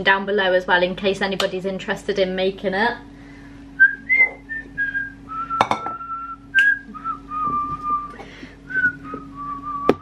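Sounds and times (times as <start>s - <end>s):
steady low hum: 0.0s - 10.0s
woman whistling a slow tune: 3.8s - 10.0s.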